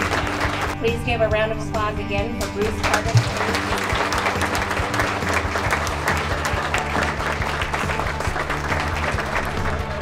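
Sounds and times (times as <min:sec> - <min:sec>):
audience applauding: 0:00.0 - 0:00.8, 0:02.8 - 0:10.0
background music: 0:00.0 - 0:10.0.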